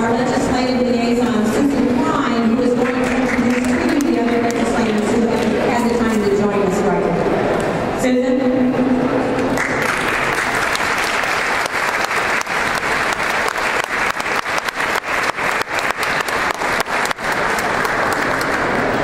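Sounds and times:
audience applauding: 2.8s - 5.0s, 9.4s - 19.0s.

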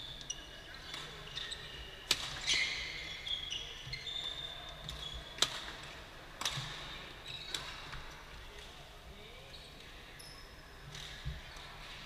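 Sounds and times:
shoes squeaking on court: 0.0s - 5.9s, 6.5s - 8.0s
racket hitting shuttlecock: 5.4s - 6.8s.

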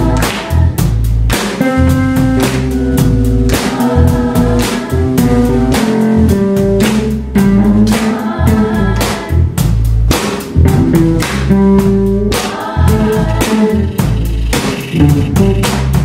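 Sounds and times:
group of voices singing: 0.0s - 1.8s, 2.6s - 9.8s, 11.9s - 15.5s
drum kit beat: 0.0s - 16.0s
electric bass and guitar: 0.0s - 16.0s.

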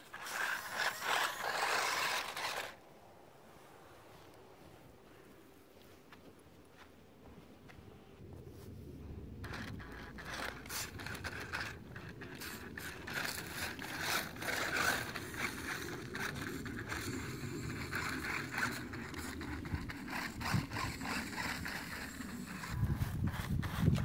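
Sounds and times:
electric motor humming: 0.0s - 2.8s, 9.4s - 24.0s
tyres scraping and crunching on rock: 0.0s - 2.8s, 9.4s - 24.0s.

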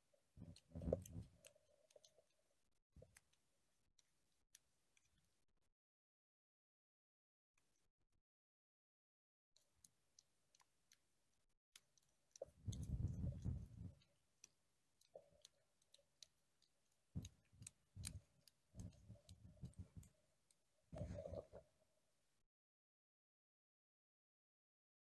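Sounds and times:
faint clicks: 11.7s - 21.6s.

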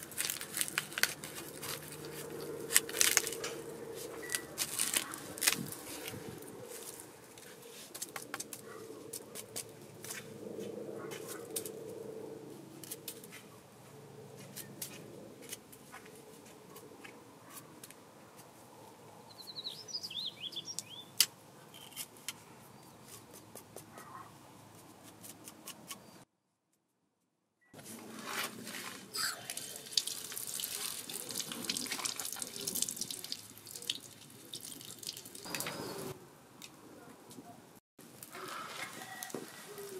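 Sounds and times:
bird chirping: 19.2s - 21.2s, 35.5s - 36.2s.

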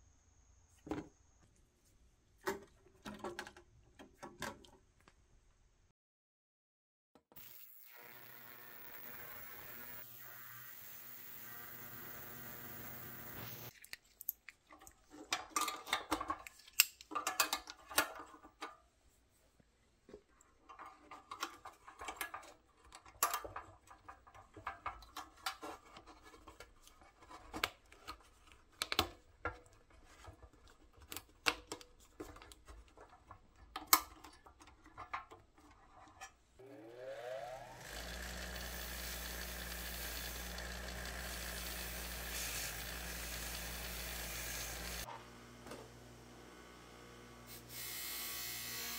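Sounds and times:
bench grinder motor: 7.3s - 13.7s, 36.6s - 48.9s.

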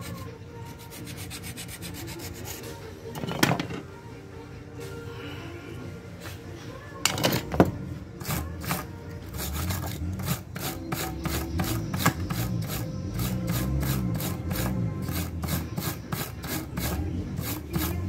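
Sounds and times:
hacksaw blade scraping metal: 8.2s - 18.0s.

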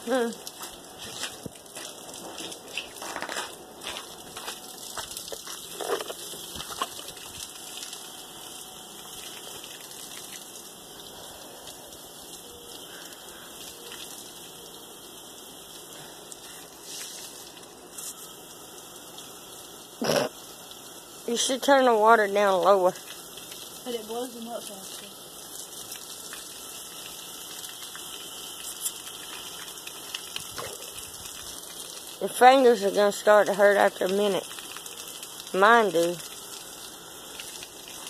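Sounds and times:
water spraying from hose: 0.0s - 38.0s.

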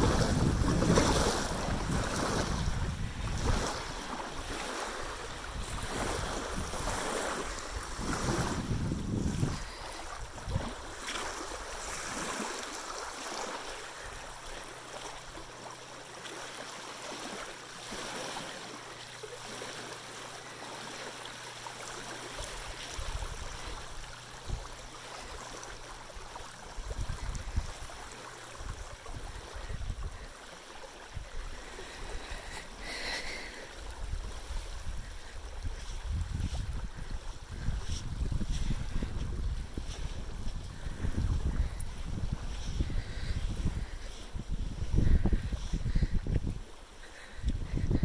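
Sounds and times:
wind buffeting microphone: 0.0s - 12.0s, 22.7s - 24.8s, 26.7s - 30.3s, 31.1s - 48.0s
small waves lapping on shore: 0.0s - 48.0s.

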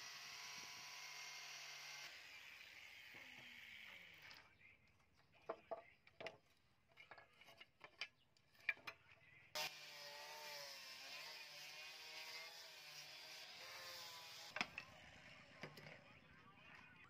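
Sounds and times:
angle grinder sanding steel: 9.6s - 14.6s.

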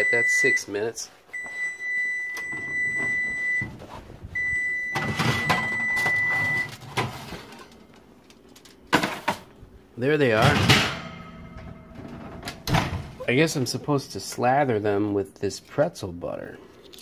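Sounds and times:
oven timer long high beeps: 1.4s - 3.7s, 4.4s - 6.8s.

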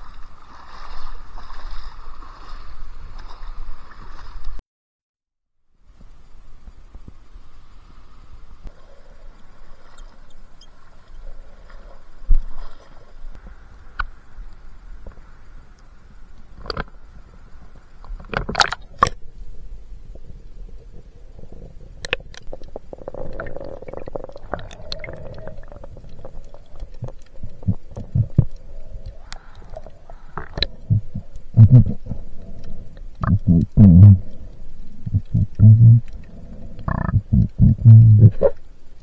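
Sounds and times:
splashes: 0.0s - 4.6s
underwater gurgling rumble: 5.8s - 39.0s.

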